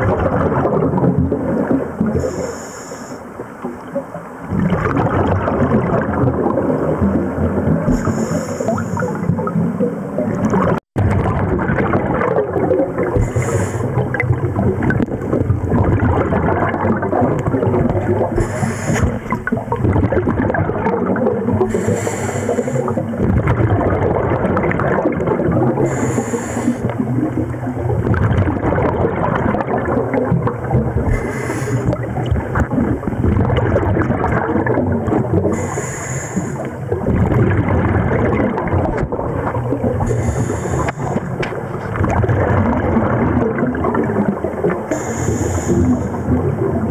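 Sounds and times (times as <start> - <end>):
underwater bubbling: 0.0 - 46.9
regulator breathing hiss: 2.2 - 3.3, 7.9 - 9.2, 13.2 - 14.0, 18.4 - 19.3, 21.7 - 23.0, 25.8 - 26.9, 31.1 - 31.9, 35.6 - 36.7, 40.1 - 41.4, 44.9 - 46.2.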